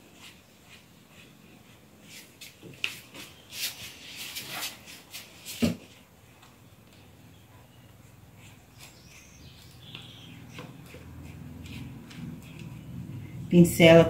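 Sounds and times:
pastry brush tapping and scraping: 0:07.9 - 0:13.2.

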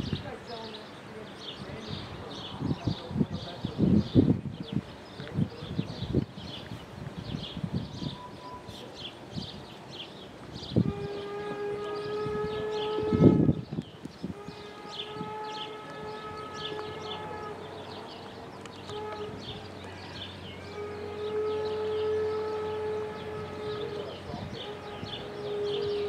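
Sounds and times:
birds chirping: 0:00.0 - 0:26.0
steam locomotive whistle: 0:08.0 - 0:08.8, 0:10.8 - 0:13.6, 0:14.2 - 0:17.6, 0:18.8 - 0:26.0.

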